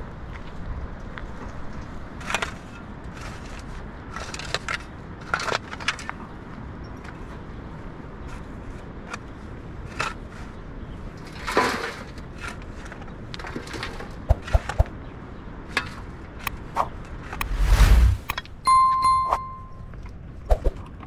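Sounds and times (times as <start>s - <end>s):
shovel digging stony soil: 16.8s - 18.4s.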